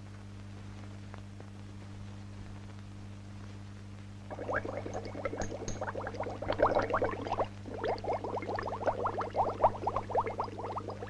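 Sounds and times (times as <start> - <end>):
low mains hum: 0.0 - 11.0
gas bubbling through water: 4.3 - 11.0.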